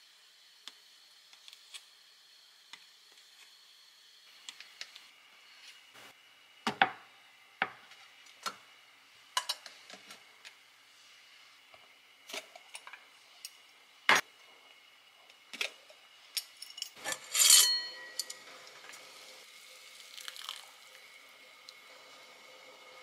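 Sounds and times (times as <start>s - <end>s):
glass jars clinking: 16.5s - 18.4s
metal pot lid clanking: 17.0s - 18.4s.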